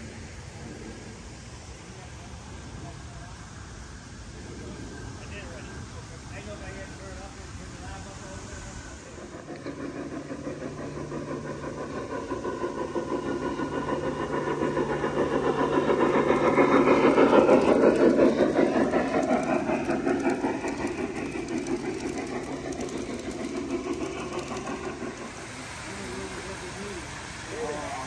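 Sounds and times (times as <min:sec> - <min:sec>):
wheels clattering on rails: 0:06.3 - 0:28.0.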